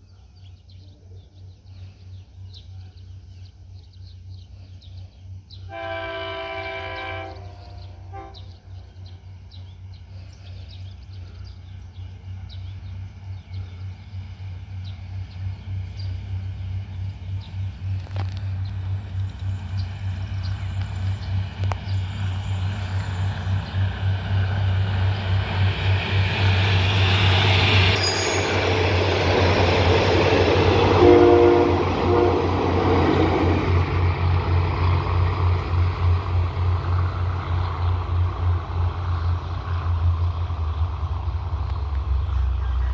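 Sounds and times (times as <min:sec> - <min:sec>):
train passing at speed: 0:00.1 - 0:42.9
train horn toots: 0:05.6 - 0:08.6, 0:30.7 - 0:33.5.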